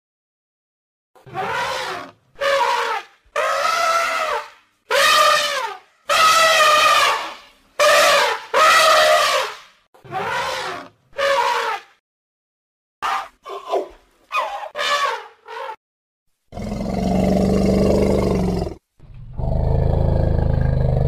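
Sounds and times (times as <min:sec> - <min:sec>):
elephants trumpeting: 0:01.3 - 0:11.8, 0:13.1 - 0:15.8.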